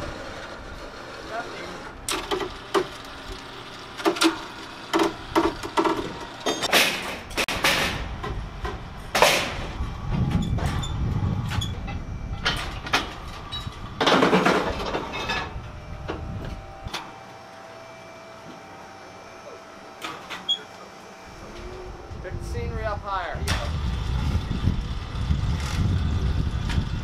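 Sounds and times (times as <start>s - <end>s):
low mechanical rumble: 0.0s - 27.0s
metal parts clanking: 10.4s - 15.6s.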